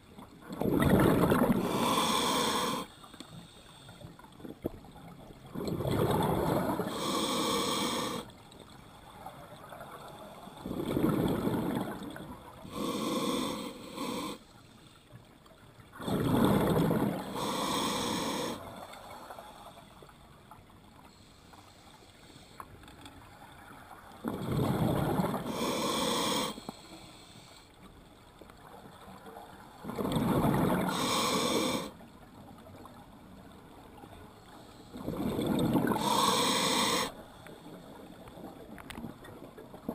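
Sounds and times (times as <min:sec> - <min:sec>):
exhaled bubbles rushing: 0:00.5 - 0:01.6
regulator hissing on inhale: 0:01.6 - 0:04.2, 0:06.6 - 0:08.4, 0:12.6 - 0:15.1, 0:17.2 - 0:20.1, 0:21.0 - 0:22.9, 0:25.4 - 0:27.8, 0:30.6 - 0:32.0, 0:35.8 - 0:37.9.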